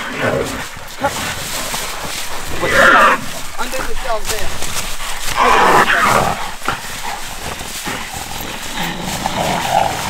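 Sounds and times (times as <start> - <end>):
scuffling in dry leaves: 0.0 - 10.0
loud animal cry: 2.4 - 3.9, 5.2 - 7.0.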